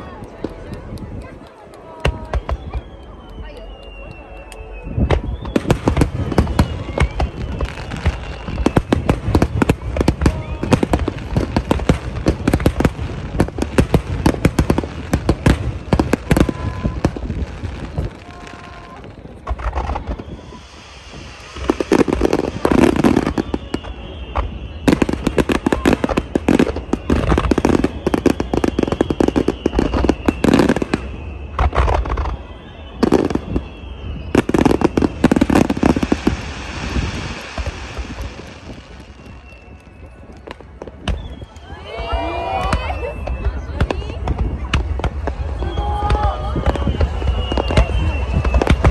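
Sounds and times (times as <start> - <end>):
firework shells bursting: 19.3 - 32.4.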